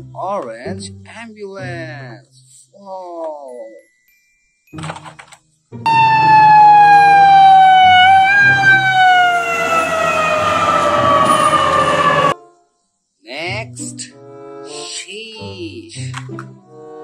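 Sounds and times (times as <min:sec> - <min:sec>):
ambulance siren falling tone: 0:05.9 - 0:12.4.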